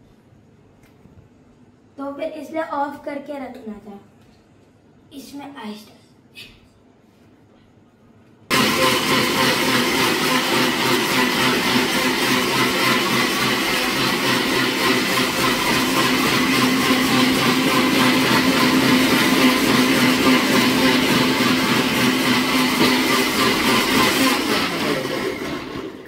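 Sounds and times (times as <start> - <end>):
ice blending in steel jar: 8.5 - 26.0
mixer grinder motor running: 8.5 - 26.0.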